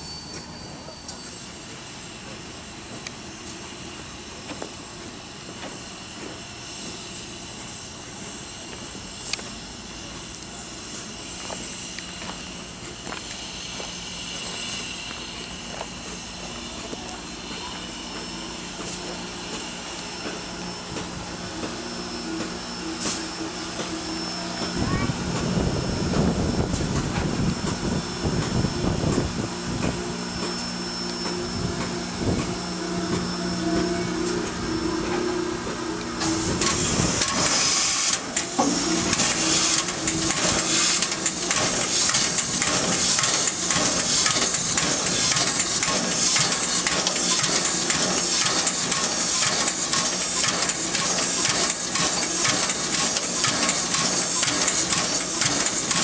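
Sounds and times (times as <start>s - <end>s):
loud steam hissing: 0.0s - 56.0s.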